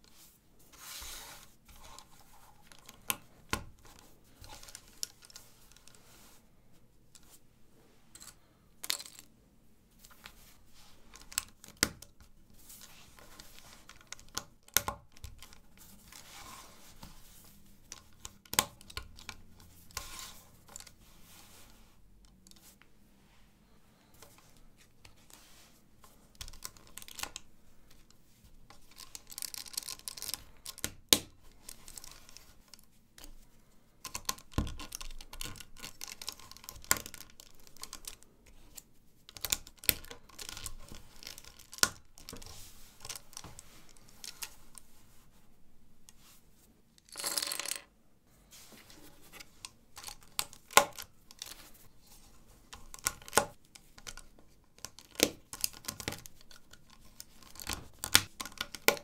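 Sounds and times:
plastic bricks clicking together: 47.0s - 47.9s.

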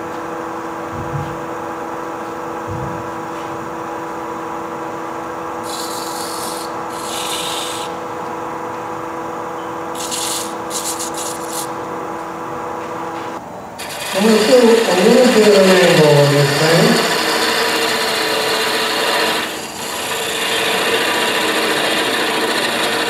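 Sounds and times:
tool rubbing spinning wood: 5.6s - 8.0s, 10.0s - 11.8s, 13.8s - 23.0s
wood lathe humming: 5.6s - 8.2s, 13.8s - 23.0s.

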